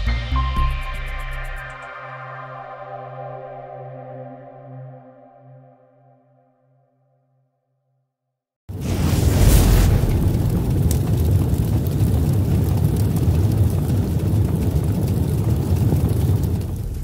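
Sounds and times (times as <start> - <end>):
low steady rumbling: 8.7 - 17.0.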